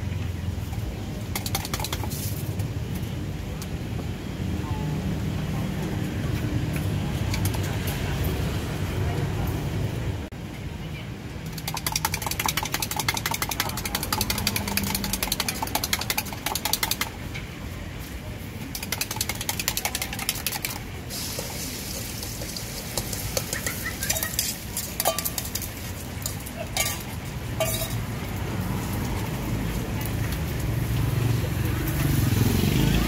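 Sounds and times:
utensil clicking in metal cup: 0:11.5 - 0:17.1
egg sizzling in hot oil: 0:19.8 - 0:26.4.

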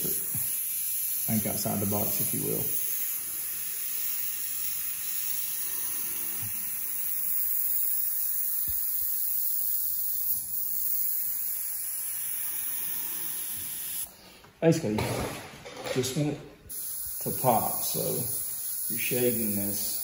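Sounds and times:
airbrush spraying paint: 0:00.0 - 0:14.1, 0:16.7 - 0:20.0.

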